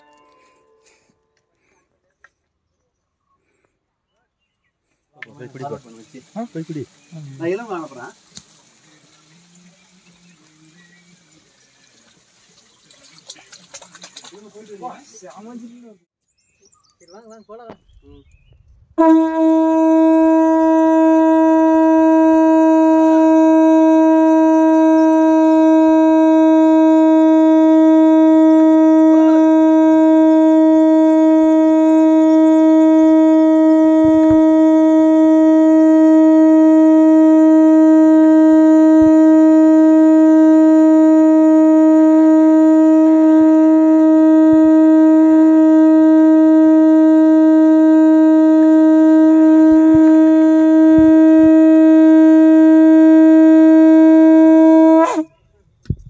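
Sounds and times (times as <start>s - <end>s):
conch shell blown: 0.0s - 1.8s, 5.2s - 11.8s, 19.0s - 55.4s.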